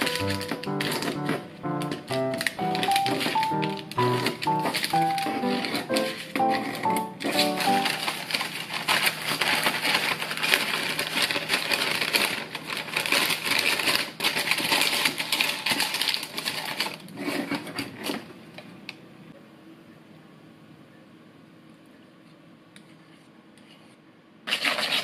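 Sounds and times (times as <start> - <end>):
baking paper crinkling: 0.0 - 18.3, 24.5 - 25.0.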